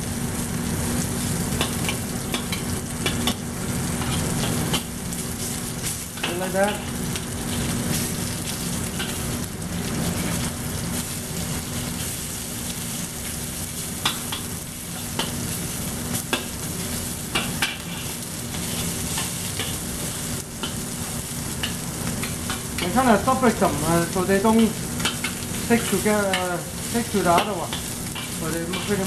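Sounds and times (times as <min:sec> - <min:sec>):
beef sizzling in a wok: 0:00.0 - 0:29.0
metal spatula scraping and clinking: 0:27.4 - 0:29.0.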